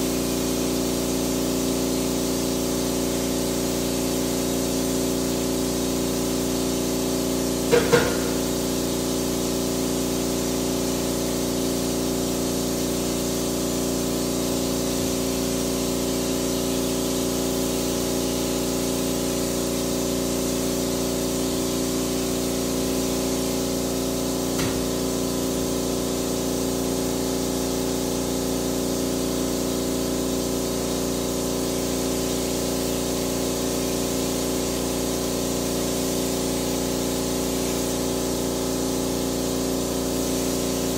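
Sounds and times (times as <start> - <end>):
electric sprayer motor hum: 0.0 - 40.9
hiss of spray: 0.1 - 40.9
loud knock: 7.7 - 8.5.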